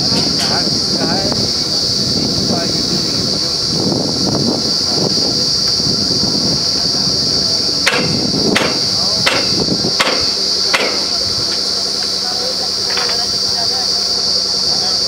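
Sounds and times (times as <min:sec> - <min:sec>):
drilling rig hissing: 0:00.0 - 0:15.0
hammer blows on metal: 0:07.8 - 0:11.7.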